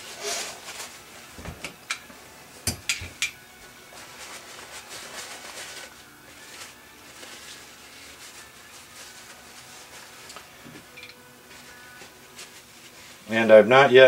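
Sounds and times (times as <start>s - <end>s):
cloth rubbing: 0.0s - 1.1s, 3.9s - 10.6s, 11.4s - 14.0s.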